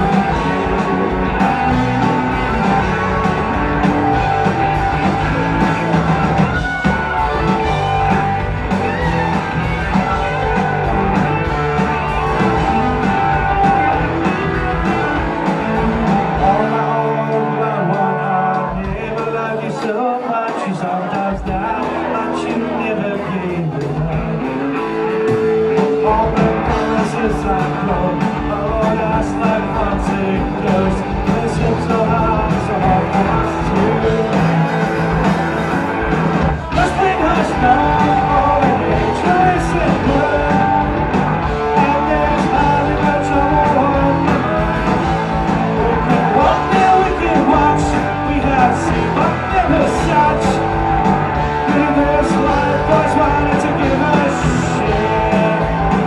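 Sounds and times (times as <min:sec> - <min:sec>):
bass guitar: 0:00.0 - 0:56.0
drum kit: 0:00.0 - 0:56.0
electric guitars: 0:00.0 - 0:56.0
man singing into a microphone: 0:16.2 - 0:24.8, 0:25.8 - 0:35.2, 0:36.6 - 0:41.0, 0:41.6 - 0:45.1, 0:45.7 - 0:50.8, 0:51.5 - 0:56.0.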